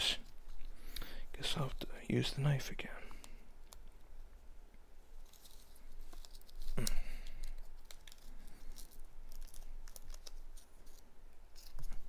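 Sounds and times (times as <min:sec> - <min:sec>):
plastic crinkling: 0:05.1 - 0:12.0
plastic ripping: 0:05.2 - 0:12.0.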